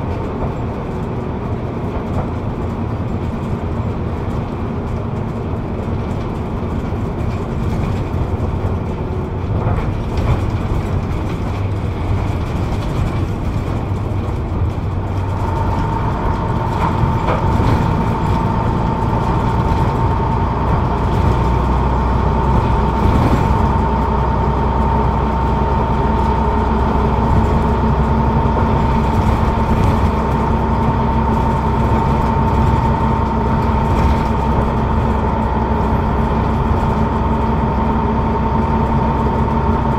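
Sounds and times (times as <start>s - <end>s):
bus diesel engine running: 0.0s - 39.9s
steady whine: 13.5s - 39.9s.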